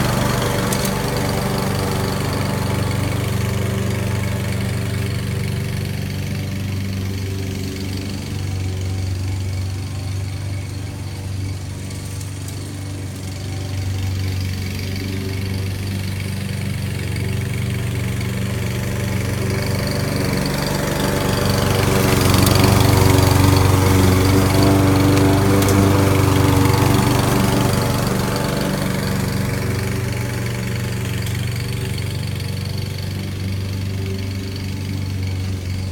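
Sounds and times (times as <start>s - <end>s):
lawn mower engine running: 0.0s - 35.9s.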